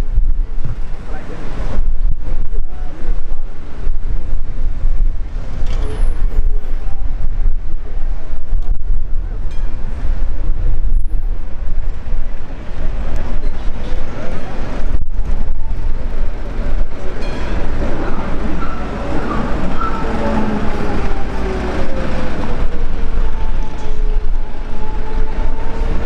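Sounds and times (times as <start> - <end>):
street traffic noise: 0.0 - 26.0
tram rumbling: 0.0 - 26.0.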